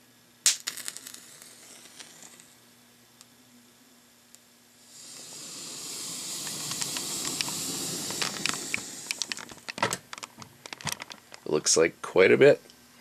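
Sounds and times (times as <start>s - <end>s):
crackling pops: 0.4s - 2.6s, 4.3s - 11.5s
gunpowder burning with a hiss: 0.5s - 2.6s, 4.8s - 9.8s
match striking: 0.5s - 2.6s, 4.9s - 9.8s
sharp clicks: 6.4s - 11.4s.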